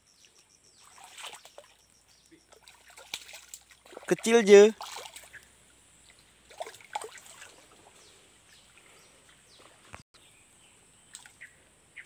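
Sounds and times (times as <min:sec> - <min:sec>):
fish splashing in water: 0:00.8 - 0:01.8, 0:02.5 - 0:05.4, 0:06.5 - 0:08.0.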